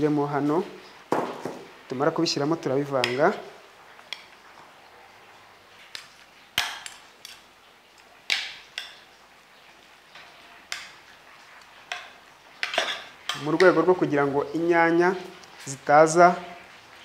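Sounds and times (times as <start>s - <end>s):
spoon clinking on ceramic plate: 11.9s - 13.4s.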